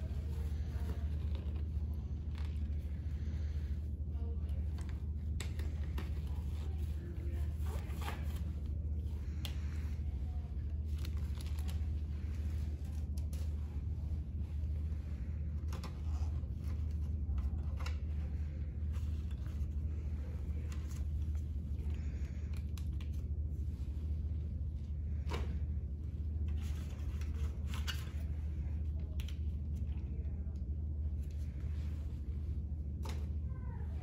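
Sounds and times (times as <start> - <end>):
steady low hum: 0.0 - 34.0
plastic packaging clicks and crinkles: 10.8 - 12.1.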